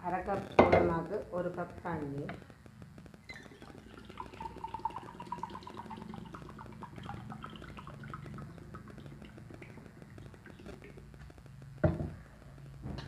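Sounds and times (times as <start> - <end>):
water pouring into a bowl: 3.3 - 11.0
water dripping: 3.3 - 11.2.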